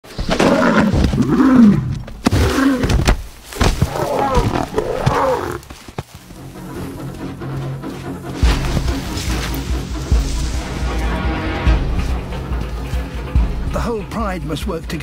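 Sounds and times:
lioness growling: 0.2s - 5.8s.

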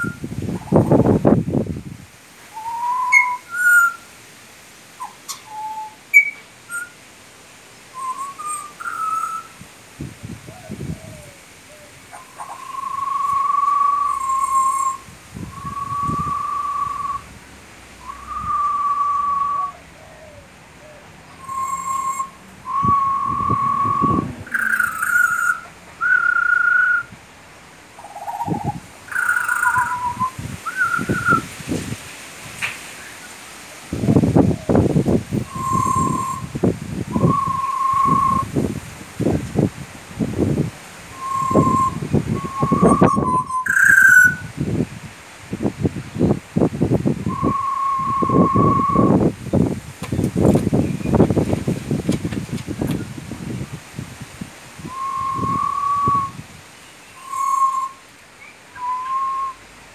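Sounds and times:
bird whistling song: 0.0s - 0.8s, 2.6s - 4.0s, 5.0s - 7.0s, 7.9s - 9.6s, 12.2s - 17.3s, 18.0s - 20.4s, 21.3s - 27.1s, 28.0s - 31.5s, 35.4s - 38.5s, 41.2s - 44.5s, 47.3s - 49.2s, 54.8s - 59.6s
person whistling: 54.9s - 56.4s, 58.8s - 59.6s.

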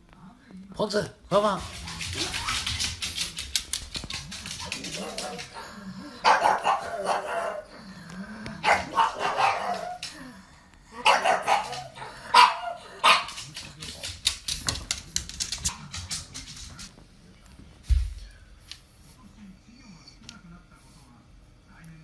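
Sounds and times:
dog barking: 4.7s - 7.7s, 8.6s - 10.0s, 11.0s - 13.5s.

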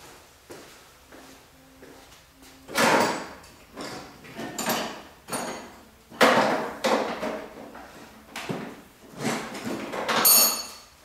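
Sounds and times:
ringing metallic clink: 10.2s - 10.9s.

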